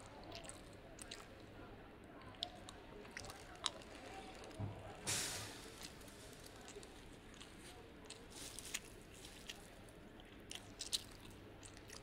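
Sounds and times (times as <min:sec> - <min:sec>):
close-miked chewing: 0:00.0 - 0:05.0, 0:05.6 - 0:12.0.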